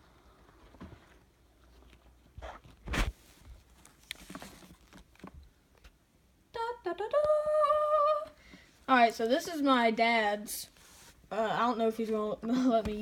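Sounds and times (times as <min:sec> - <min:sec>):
handling knocks and rustles: 0:00.4 - 0:06.0.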